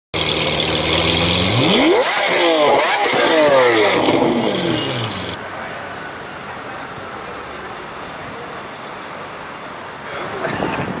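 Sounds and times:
sports car engine revving: 0.2 - 5.4.

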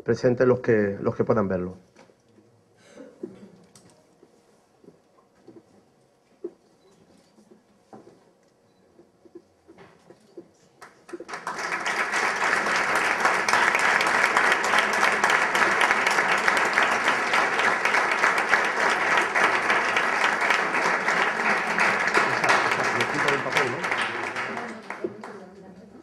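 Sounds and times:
audience applauding: 10.8 - 25.6.

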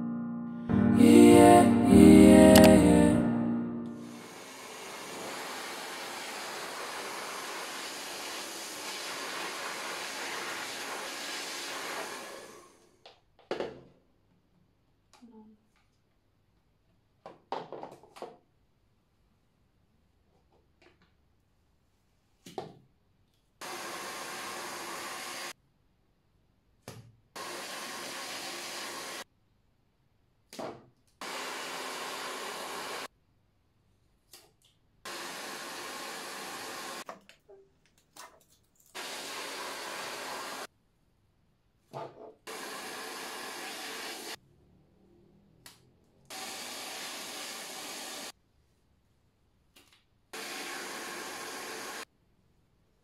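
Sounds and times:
hair dryer blowing: 4.0 - 12.8, 23.6 - 25.6, 27.4 - 29.3, 31.2 - 33.1, 35.1 - 37.1, 39.0 - 40.7, 42.5 - 44.4, 46.3 - 48.3, 50.4 - 52.1.

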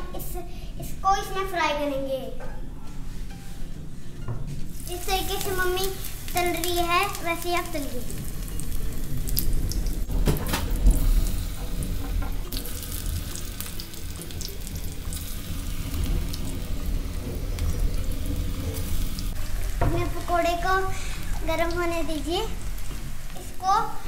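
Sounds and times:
hot oil sizzling: 4.7 - 24.0
oil popping: 4.7 - 24.0
steady low rumble: 4.8 - 24.0.

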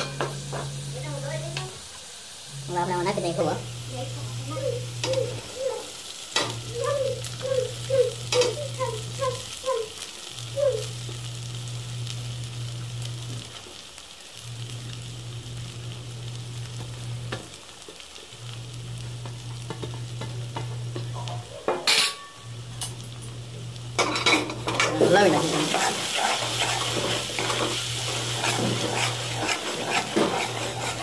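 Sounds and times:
oil and spices sizzling in a pot: 0.0 - 31.0
rice scraped from a metal plate: 25.4 - 31.0.

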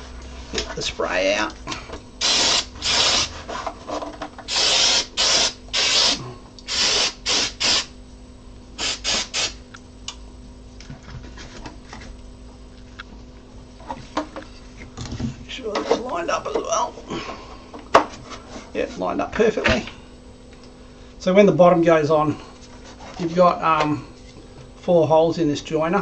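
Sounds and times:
spray can hissing: 2.2 - 3.3, 4.5 - 7.9, 8.8 - 9.6.

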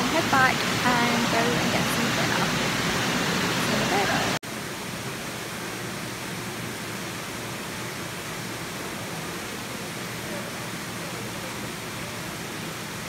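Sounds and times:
swimming pool hall rushing noise: 0.0 - 13.0.

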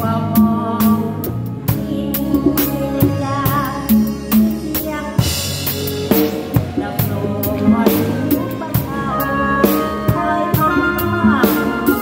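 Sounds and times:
band bass and melody: 0.0 - 12.0
drum kit playing: 0.0 - 12.0.

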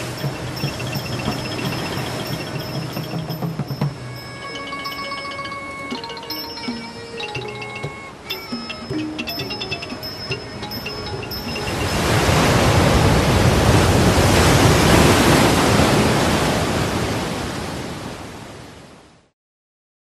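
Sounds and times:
plucked string notes: 0.0 - 13.1.

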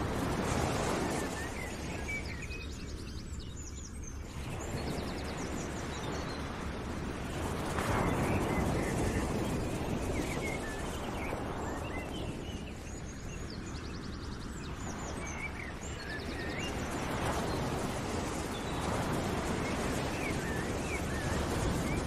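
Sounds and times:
steady rushing noise: 0.0 - 3.4, 4.0 - 22.0.

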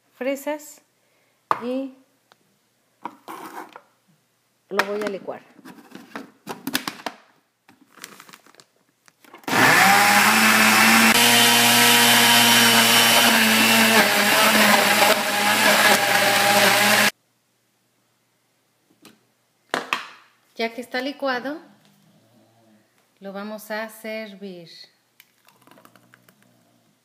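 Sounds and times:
blender running: 9.5 - 17.1.

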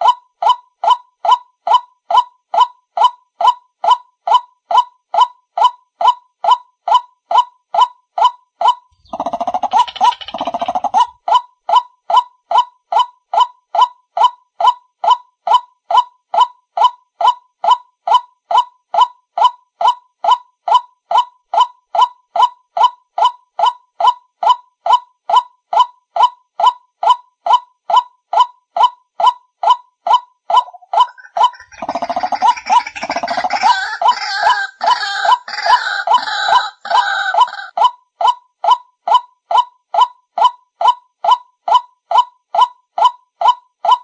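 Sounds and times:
bird call through speaker: 30.6 - 37.8.

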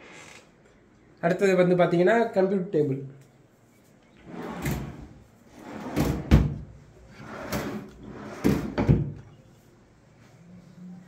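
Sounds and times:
wooden drawers sliding open and shut: 4.2 - 9.2
drawer knocking shut: 8.4 - 9.2.

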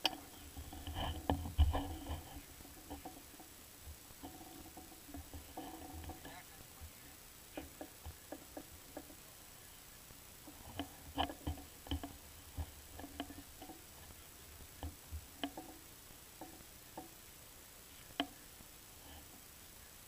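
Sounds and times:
light clicks and knocks: 0.0 - 6.4, 7.5 - 9.3, 10.4 - 14.2, 14.8 - 17.2.

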